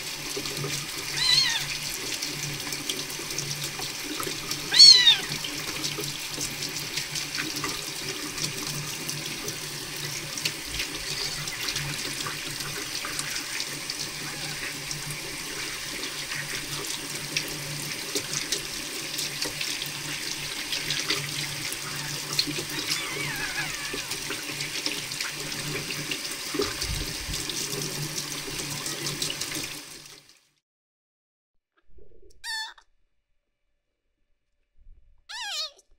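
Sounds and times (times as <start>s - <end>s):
tap water running into sink: 0.0s - 30.4s.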